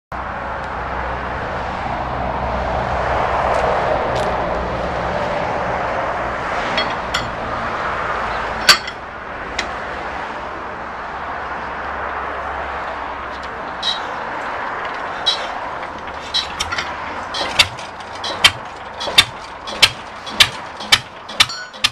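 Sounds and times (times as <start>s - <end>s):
metal clinks: 6.8s - 7.4s, 8.6s - 9.0s, 13.3s - 14.2s, 14.8s - 21.9s.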